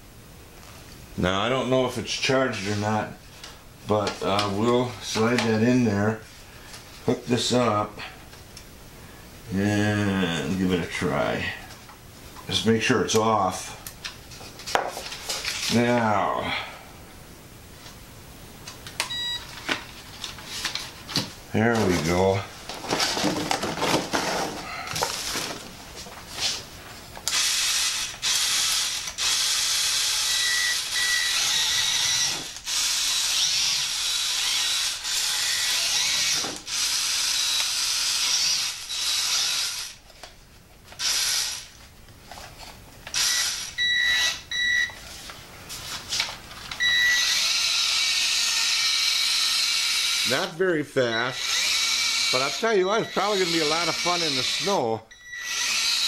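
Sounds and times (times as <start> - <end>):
toy car electric motor whirring: 27.2 - 40.0, 41.0 - 41.7, 43.1 - 44.4, 46.9 - 50.4, 51.4 - 54.8, 55.4 - 56.0.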